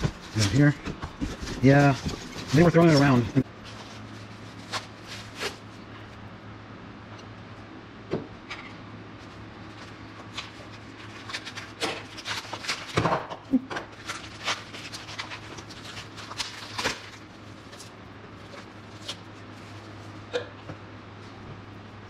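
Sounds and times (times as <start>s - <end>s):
packing paper rustling: 0.0s - 5.9s, 9.2s - 13.1s, 13.8s - 20.2s
steady low hum: 0.0s - 22.0s.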